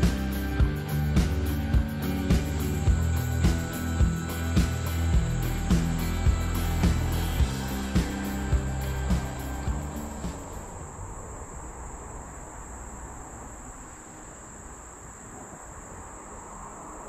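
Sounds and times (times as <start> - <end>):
background music with low bass: 0.0 - 10.9
insect chorus drone: 0.0 - 17.0.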